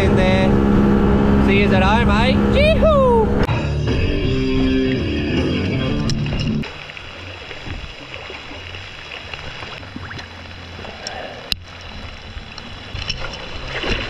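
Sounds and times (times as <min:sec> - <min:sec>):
water and wind noise: 0:00.0 - 0:03.5, 0:04.3 - 0:14.0
outboard motor running: 0:00.0 - 0:14.0.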